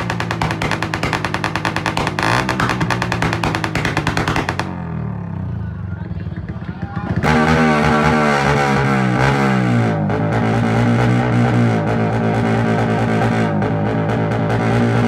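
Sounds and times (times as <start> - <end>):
motorcycle revving: 0.0 - 15.0.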